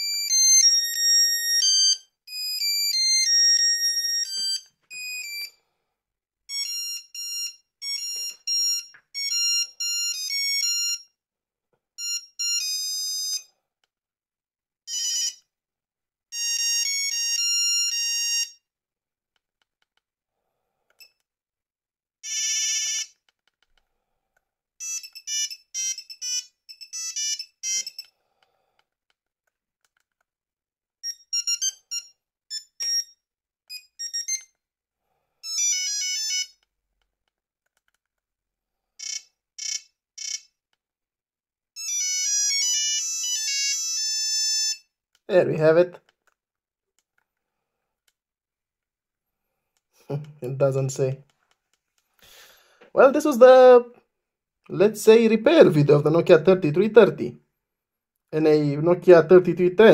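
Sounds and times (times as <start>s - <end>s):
mobile phone monophonic ringtones: 6.5s - 11.0s, 12.0s - 13.4s, 14.9s - 15.4s, 16.3s - 18.5s, 22.2s - 23.2s, 24.8s - 28.1s, 31.0s - 33.1s, 33.7s - 34.5s, 35.4s - 36.6s, 39.0s - 40.5s, 41.8s - 44.9s.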